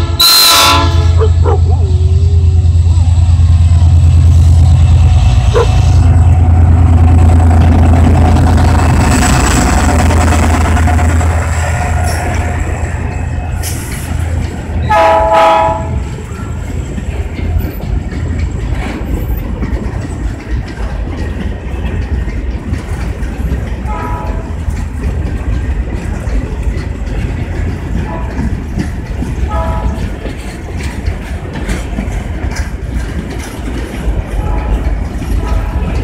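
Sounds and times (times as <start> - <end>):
train horn blasts: 0.0 - 2.7, 14.8 - 16.1, 23.9 - 24.6, 29.5 - 30.0
freight train rumbling past: 0.0 - 36.0
wheels clicking over rail joints: 5.4 - 36.0.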